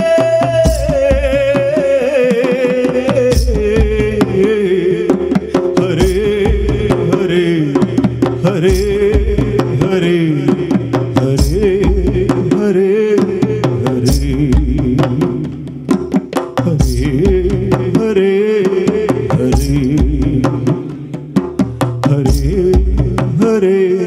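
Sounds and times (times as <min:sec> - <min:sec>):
hand-drum strokes: 0:00.0 - 0:24.0
man singing: 0:00.0 - 0:24.0.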